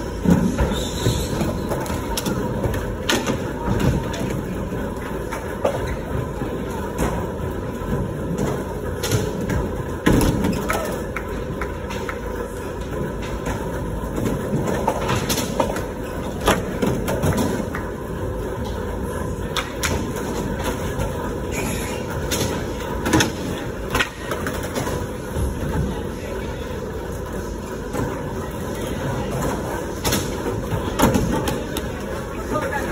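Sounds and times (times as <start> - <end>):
skateboard wheels rumbling: 0.0 - 32.9
skateboard clacks: 1.3 - 21.3.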